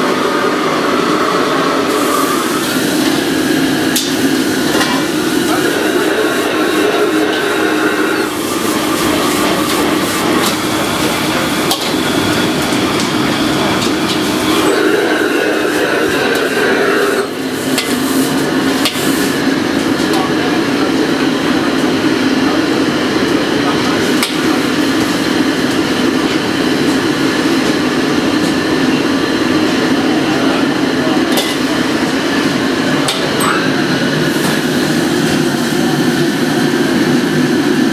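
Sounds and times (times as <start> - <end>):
wok burners rushing: 0.0 - 37.9.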